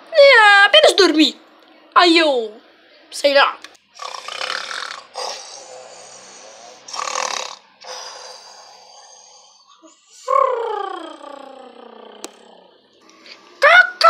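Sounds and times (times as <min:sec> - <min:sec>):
person imitating snoring: 0:04.0 - 0:12.8
voiced sound falling in pitch: 0:10.2 - 0:12.7.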